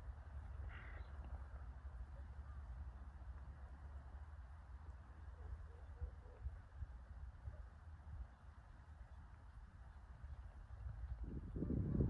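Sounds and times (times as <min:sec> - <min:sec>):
wind rumble on microphone: 0:05.9 - 0:12.0.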